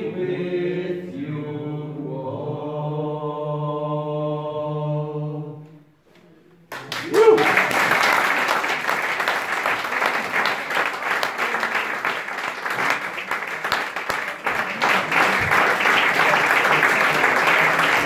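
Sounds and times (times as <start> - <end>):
audience applauding: 6.7 - 18.0.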